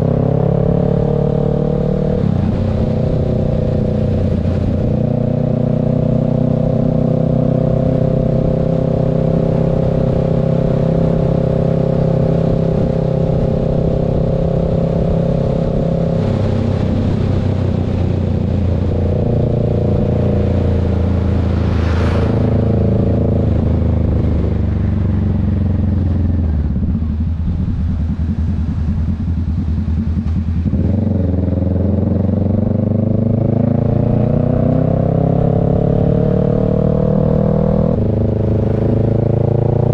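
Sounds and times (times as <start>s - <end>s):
motorcycle engine running: 0.0s - 39.9s
vehicle passing whoosh: 15.7s - 39.9s.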